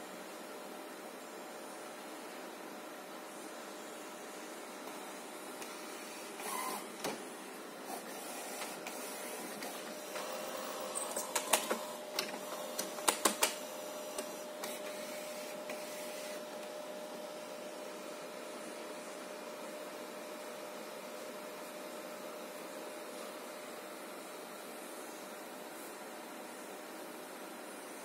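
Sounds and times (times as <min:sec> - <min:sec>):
printer whine: 0:00.9 - 0:28.0
printer motor hum: 0:04.8 - 0:18.7
sharp mechanical clicks and clacks: 0:10.9 - 0:13.6.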